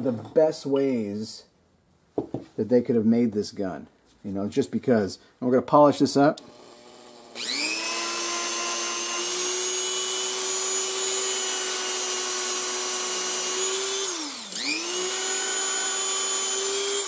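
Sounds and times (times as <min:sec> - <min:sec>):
rotary tool whining: 0:06.4 - 0:17.0.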